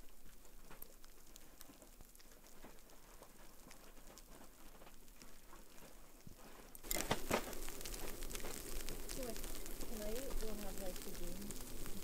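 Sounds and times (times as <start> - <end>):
faint light patter: 0.0 - 12.0
crunching in snow: 2.4 - 12.0.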